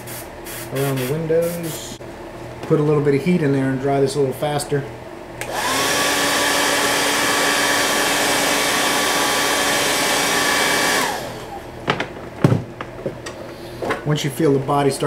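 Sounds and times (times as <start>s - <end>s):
hair dryer motor whine: 5.4s - 11.7s.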